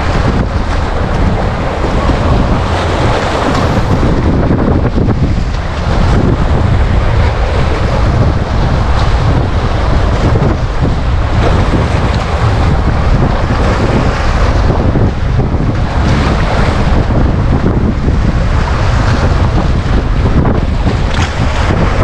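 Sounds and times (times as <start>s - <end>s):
small waves breaking on beach: 0.0s - 14.7s
wind on microphone: 0.0s - 22.0s.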